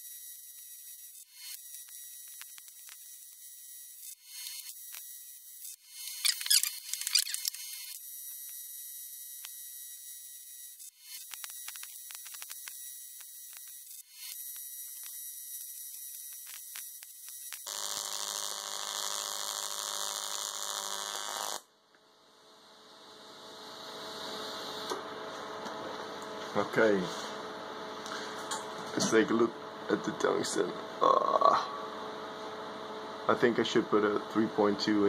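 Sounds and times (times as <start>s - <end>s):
welding arc crackles: 0.0s - 21.7s
welding arc humming and hissing: 0.0s - 35.0s.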